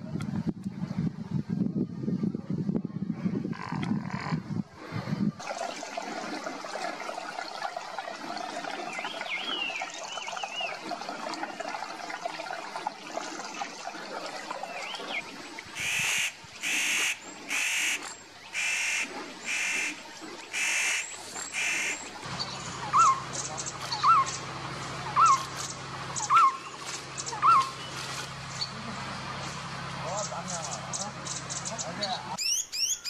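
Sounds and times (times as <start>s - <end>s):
faint birdsong: 8.7s - 11.0s, 14.5s - 33.0s
bird giving loud harsh calls: 15.8s - 22.0s, 22.8s - 23.2s, 26.2s - 26.7s.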